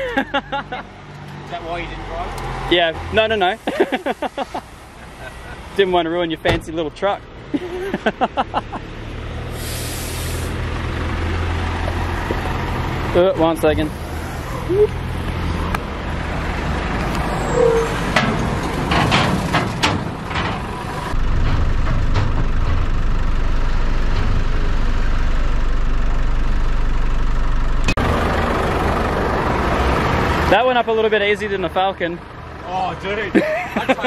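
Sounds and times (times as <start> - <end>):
vehicle engine running: 3.2 - 34.0.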